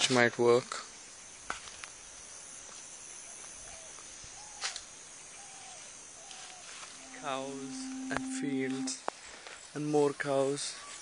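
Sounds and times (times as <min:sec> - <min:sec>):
high-pitched insect drone: 0:02.2 - 0:09.1
short low calls: 0:07.0 - 0:09.0.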